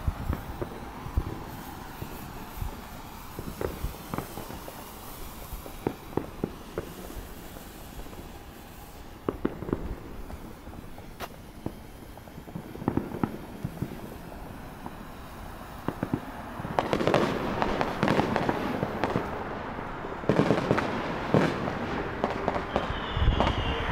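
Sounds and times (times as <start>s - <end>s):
firework crackling and popping: 0.0s - 23.9s.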